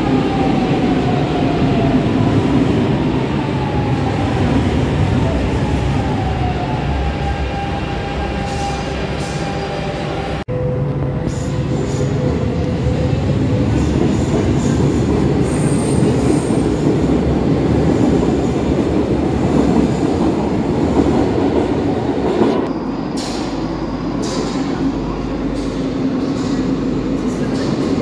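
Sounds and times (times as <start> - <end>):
train wheels rumbling on rails: 11.2 - 28.0.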